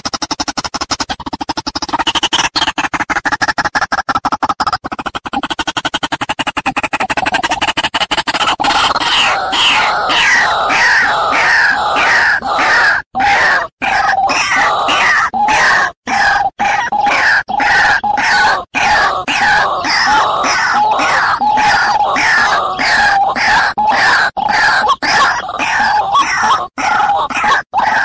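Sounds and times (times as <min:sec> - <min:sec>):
rapid stuttering pulse: 0:00.0 - 0:11.8, 0:16.8 - 0:26.5
bird harsh croaking calls: 0:00.0 - 0:28.0.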